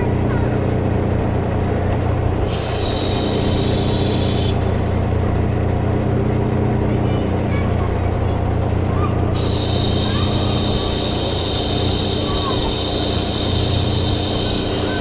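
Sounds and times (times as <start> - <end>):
diesel truck engine idling: 0.0 - 15.0
air hiss: 2.4 - 4.8, 9.4 - 15.0.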